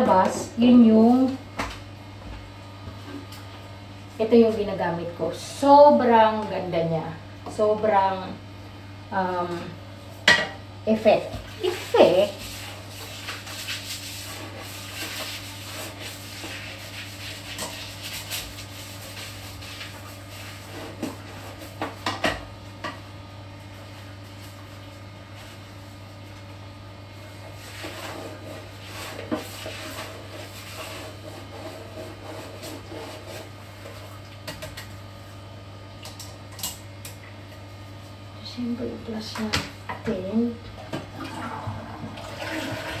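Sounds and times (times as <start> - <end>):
scrubbing toilet bowl: 10.9 - 22.9, 27.1 - 34.4, 40.7 - 43.0.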